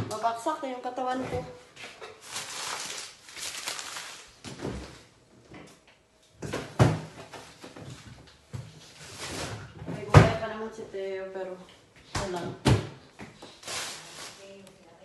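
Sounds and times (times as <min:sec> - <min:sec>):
knocks and thuds in fridge: 0:06.4 - 0:07.2, 0:10.0 - 0:10.4, 0:12.2 - 0:13.0.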